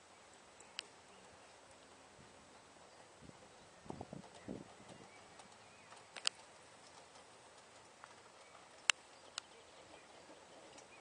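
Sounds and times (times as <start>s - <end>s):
hoofbeats on grass: 2.8s - 11.0s
sharp clicks: 5.4s - 7.2s.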